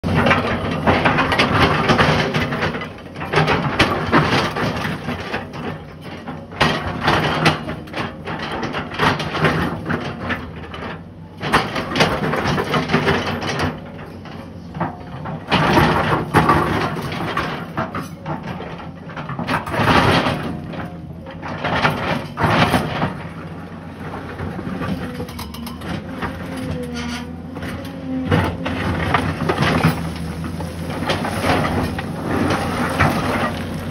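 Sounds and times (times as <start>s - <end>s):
excavator diesel engine running: 0.0s - 33.9s
bucket scraping and crunching rock: 15.5s - 33.9s.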